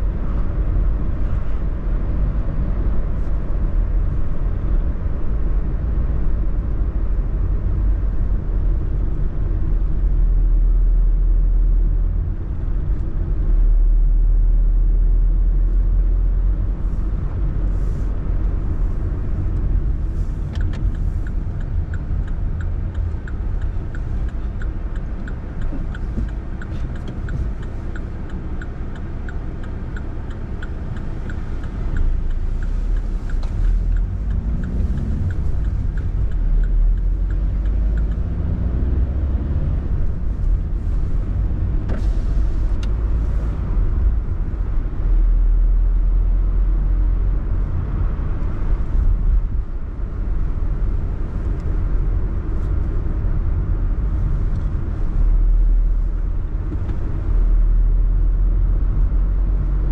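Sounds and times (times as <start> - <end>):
car engine: 0.0 - 59.9
road rumble: 0.0 - 59.9
light ticking: 20.4 - 38.5.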